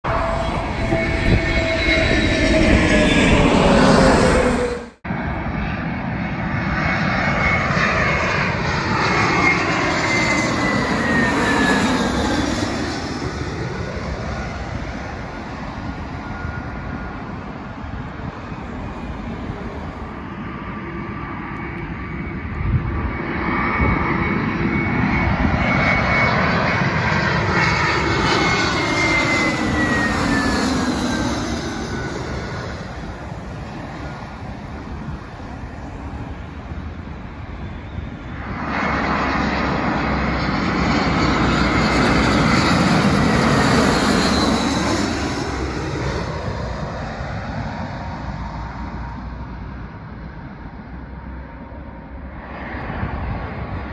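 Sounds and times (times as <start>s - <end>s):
jet airliner passing overhead: 0.0s - 53.9s.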